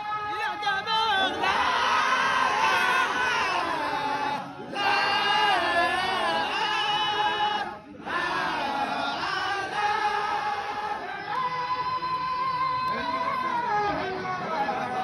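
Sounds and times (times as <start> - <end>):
men chanting together: 1.2 - 11.1.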